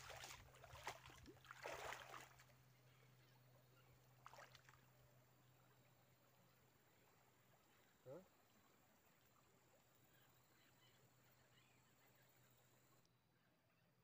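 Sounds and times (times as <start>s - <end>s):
shallow water splashing: 0.0s - 2.6s, 4.2s - 4.9s.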